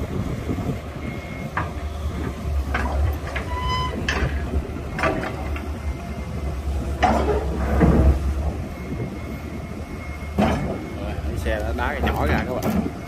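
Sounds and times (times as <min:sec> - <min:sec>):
heavy diesel engines drone: 0:00.0 - 0:13.0
metallic clanks and scrapes: 0:02.7 - 0:04.4.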